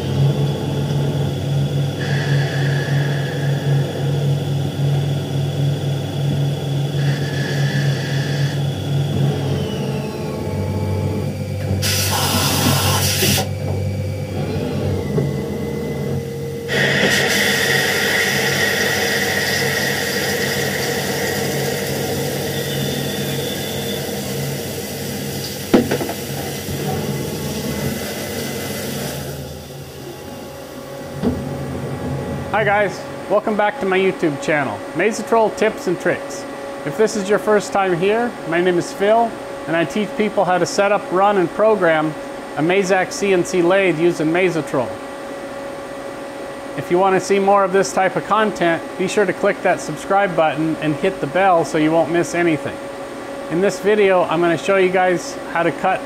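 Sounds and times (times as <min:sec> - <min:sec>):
lathe spindle hum and whine: 0:00.0 - 0:56.0
coolant spraying hiss: 0:11.8 - 0:13.5, 0:16.7 - 0:22.4, 0:23.0 - 0:29.6.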